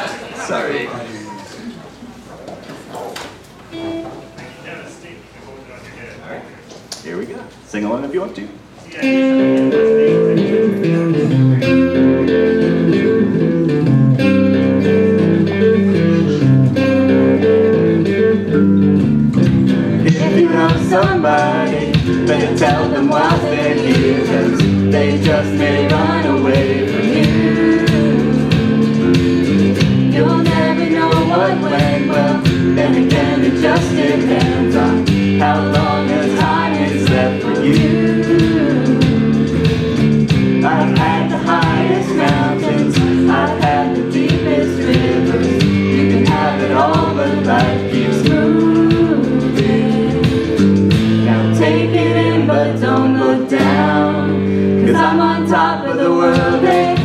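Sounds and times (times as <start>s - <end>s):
strummed electric guitar: 9.0s - 57.0s
congregation singing along: 19.4s - 57.0s
voices singing a pop song: 19.7s - 57.0s.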